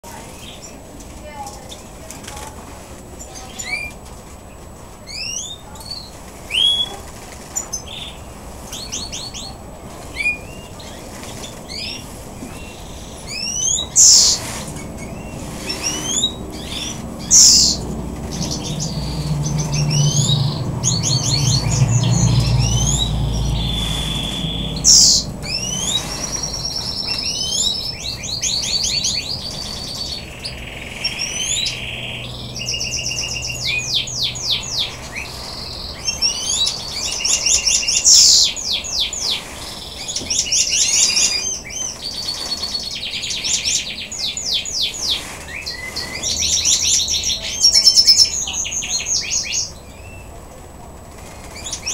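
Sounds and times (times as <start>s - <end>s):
songbirds chirping and trilling: 0.0s - 51.9s
low rumble: 13.8s - 28.4s.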